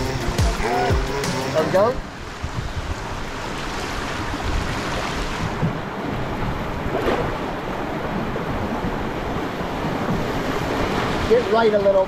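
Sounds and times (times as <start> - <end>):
river rapids rushing: 0.0 - 12.0
wind rumbling on microphone: 1.7 - 12.0.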